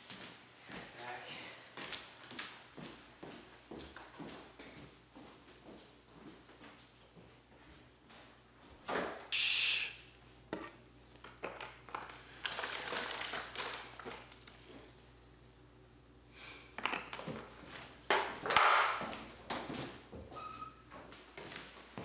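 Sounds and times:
footsteps on wooden floor: 1.8s - 8.3s.

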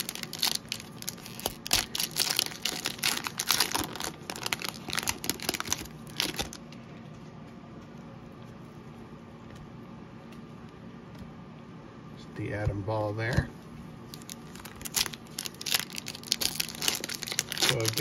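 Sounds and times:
foil wrapper tearing and crinkling: 0.0s - 6.6s, 14.1s - 18.0s.

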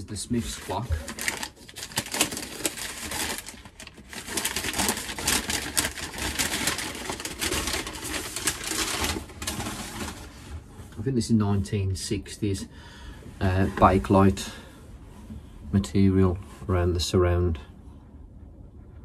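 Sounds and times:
paper wrapping crinkling: 0.4s - 10.6s.

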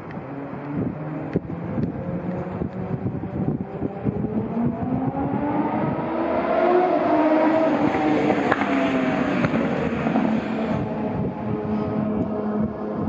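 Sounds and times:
train traction whine: 0.0s - 13.0s
train wheels rumbling on rails: 7.5s - 13.0s.

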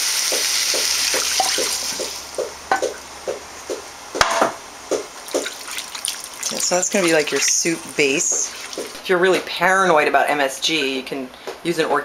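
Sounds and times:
liquid sizzling in a hot pan: 0.0s - 2.3s, 5.3s - 9.0s.

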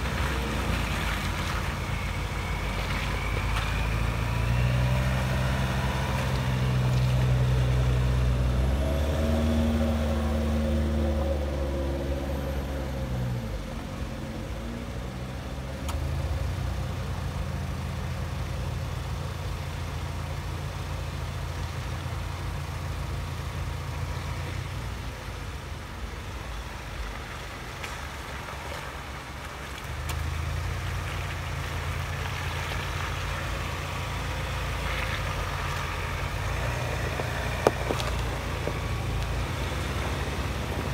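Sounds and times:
engine revving: 0.0s - 16.4s
diesel truck engine climbing: 0.0s - 40.9s.

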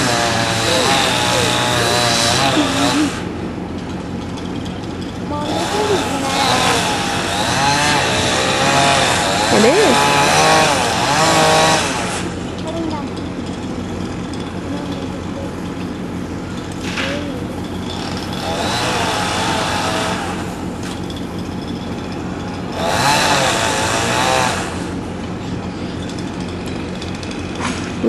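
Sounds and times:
power saw cutting wood: 0.0s - 3.3s, 5.4s - 12.6s, 17.8s - 21.2s, 22.4s - 25.2s
steady low hum: 0.0s - 28.0s.

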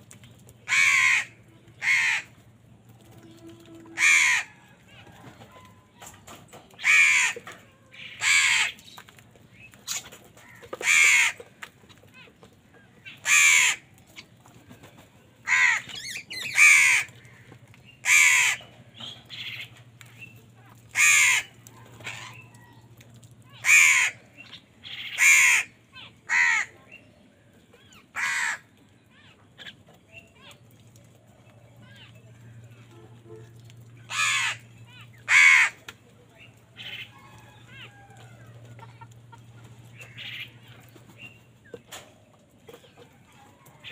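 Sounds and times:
crows cawing: 0.6s - 2.4s, 4.0s - 4.8s, 6.8s - 8.8s, 10.4s - 11.5s, 13.1s - 13.9s, 15.4s - 18.7s, 20.9s - 22.7s, 23.5s - 26.8s, 28.1s - 28.7s, 34.1s - 35.8s, 39.9s - 40.6s.

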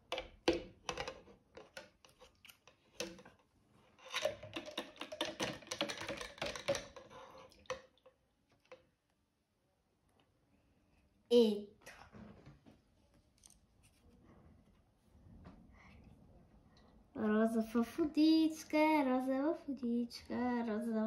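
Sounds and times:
plastic doll clicking against cup: 4.1s - 7.1s.

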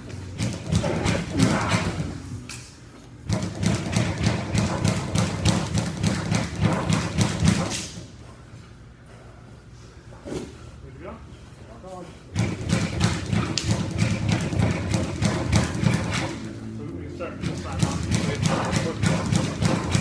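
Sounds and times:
music with heavy thudding beat: 3.2s - 7.7s, 12.4s - 16.5s, 17.3s - 20.0s.

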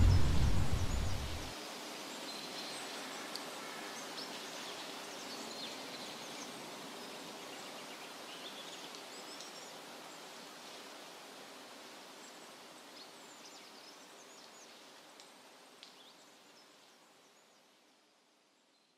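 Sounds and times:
deep rumble: 0.0s - 1.5s
soft steady hiss: 0.0s - 18.9s.

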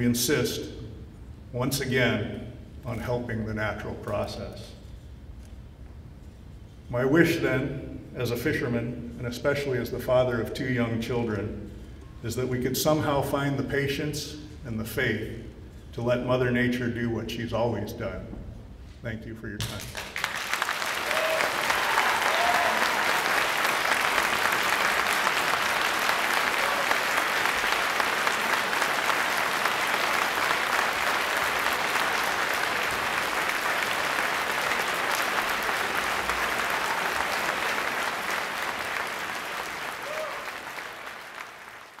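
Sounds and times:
large audience applauding: 19.8s - 42.0s.

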